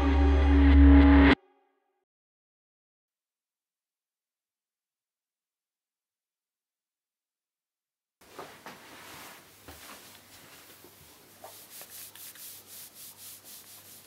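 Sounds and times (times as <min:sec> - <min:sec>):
clothing rustling: 0:08.2 - 0:14.0.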